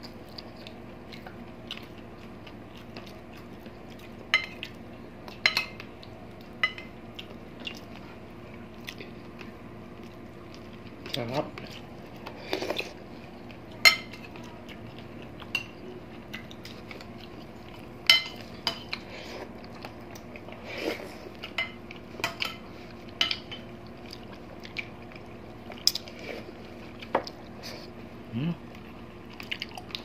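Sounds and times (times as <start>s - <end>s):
eating sounds: 23.8s - 30.0s.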